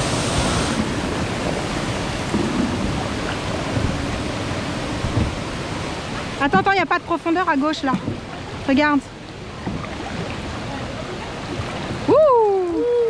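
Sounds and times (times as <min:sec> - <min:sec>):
bright hiss: 0:00.0 - 0:00.8
wind on microphone: 0:00.0 - 0:06.8
river water flowing: 0:00.0 - 0:13.0.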